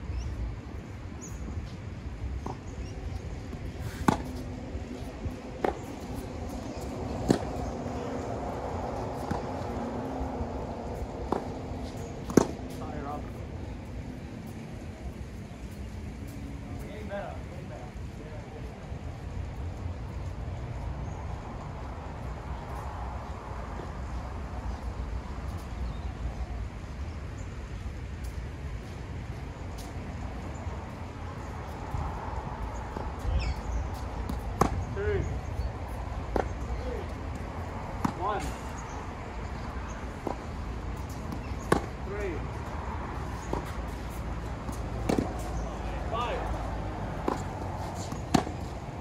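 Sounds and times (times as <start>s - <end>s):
low outdoor rumble: 0.0s - 49.0s
tennis balls struck by racquets: 2.4s - 13.3s, 32.8s - 49.0s.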